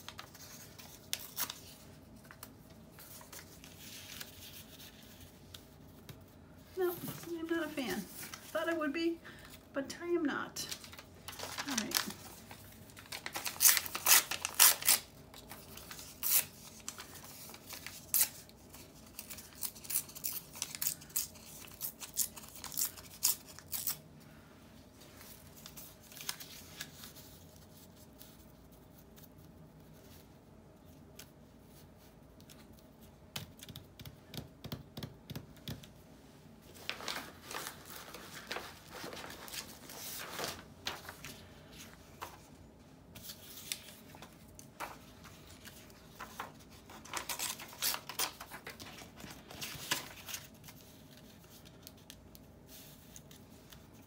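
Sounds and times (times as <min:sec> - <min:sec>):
paper rustling and crinkling: 0:00.0 - 0:09.6, 0:10.6 - 0:24.0, 0:24.9 - 0:33.1, 0:36.6 - 0:54.0
paper ripping: 0:10.8 - 0:18.5.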